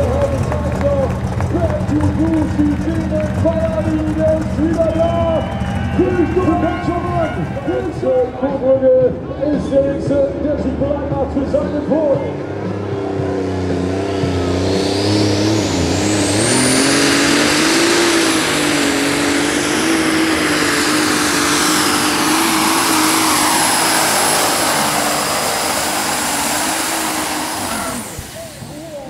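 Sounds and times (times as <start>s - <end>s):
tractor engine at full power: 0.0s - 29.0s
high turbo whistle: 14.0s - 29.0s.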